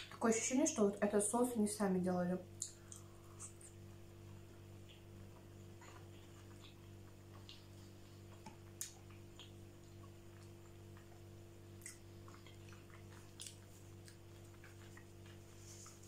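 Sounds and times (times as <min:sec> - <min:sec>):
steady low hum: 0:00.0 - 0:16.0
wet mouth clicks: 0:02.6 - 0:03.8, 0:06.3 - 0:15.3
close-miked chewing: 0:02.6 - 0:16.0.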